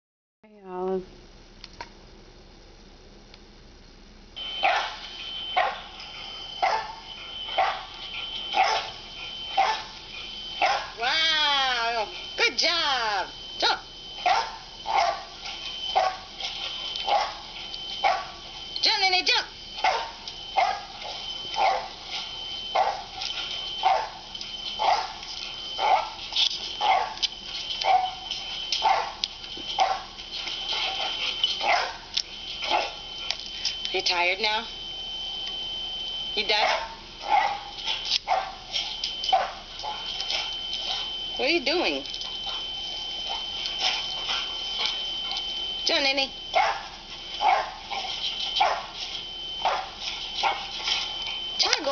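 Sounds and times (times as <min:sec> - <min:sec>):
dog barking through speakers: 0:04.4 - 0:09.9, 0:10.6 - 0:11.1, 0:13.6 - 0:16.3, 0:17.0 - 0:20.9, 0:21.6 - 0:22.0, 0:22.7 - 0:23.1, 0:23.7 - 0:24.2, 0:24.8 - 0:27.2, 0:27.8 - 0:28.2, 0:28.8 - 0:30.2, 0:30.8 - 0:32.1, 0:32.7 - 0:33.0, 0:36.4 - 0:40.6, 0:46.0 - 0:49.0, 0:49.6 - 0:50.8
thin steady high tone: 0:04.4 - 0:51.9.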